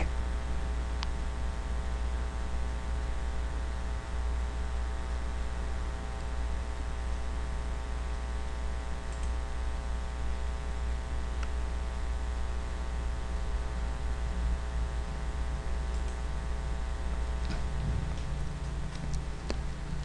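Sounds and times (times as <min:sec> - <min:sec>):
steady electrical hum: 0:00.0 - 0:20.0
faint mouse clicks: 0:09.1 - 0:09.4.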